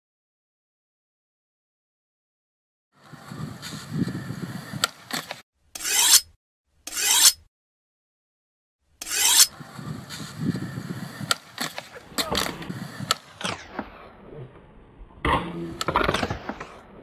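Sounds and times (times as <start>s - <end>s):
skateboard wheels rolling on concrete: 3.0s - 5.4s, 9.4s - 17.0s
skateboard grinding along ledge: 3.0s - 6.1s, 9.0s - 17.0s.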